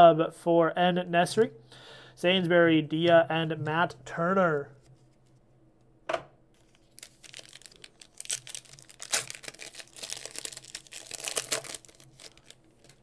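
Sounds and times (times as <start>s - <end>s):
foil wrapper crinkling: 6.6s - 13.0s.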